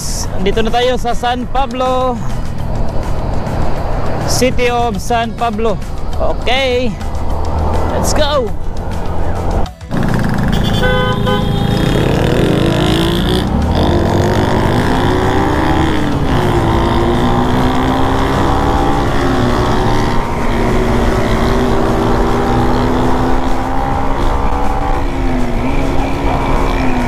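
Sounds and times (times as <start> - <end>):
road and wind noise: 0.0 - 27.0
motorcycle engine accelerating: 8.6 - 27.0
vehicle horn beeping: 10.4 - 12.0.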